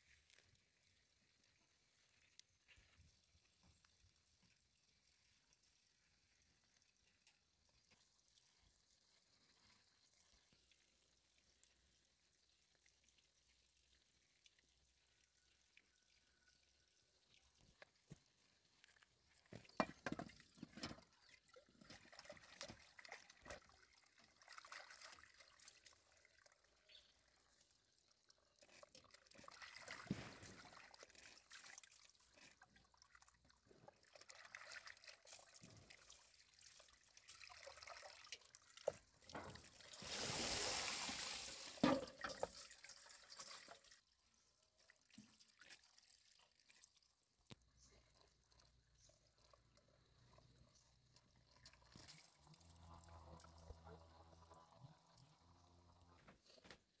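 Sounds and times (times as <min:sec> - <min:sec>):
water running from pipe: 0:02.0 - 0:44.1
water splashing in metal basin: 0:19.4 - 0:26.6, 0:28.6 - 0:44.0.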